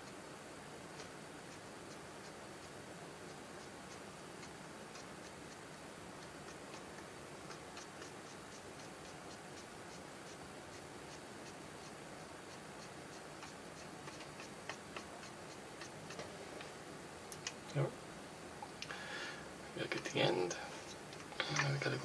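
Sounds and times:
low hiss: 0.0s - 22.0s
rapid ticking: 0.9s - 16.3s.

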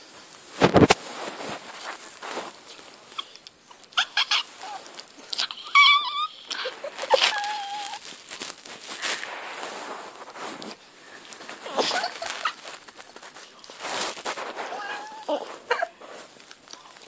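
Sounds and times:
bedding rustling: 0.0s - 17.0s
small dog whining: 3.1s - 8.1s, 14.6s - 15.9s.

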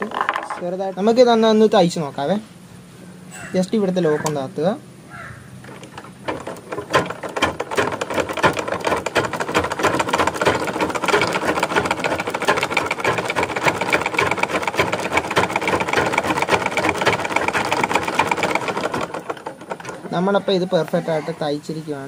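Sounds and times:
treadle sewing machine clattering: 5.6s - 21.2s.

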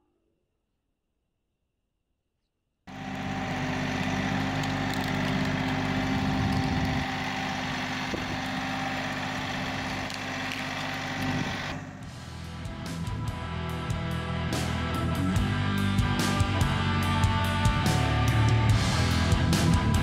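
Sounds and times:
tractor diesel engine running: 2.9s - 13.5s.

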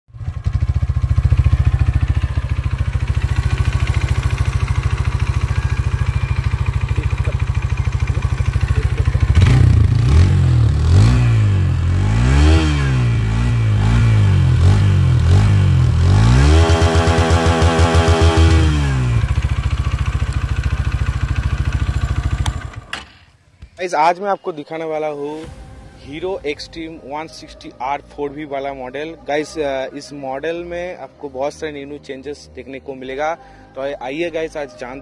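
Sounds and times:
motorcycle engine idling and revving: 0.1s - 23.3s.

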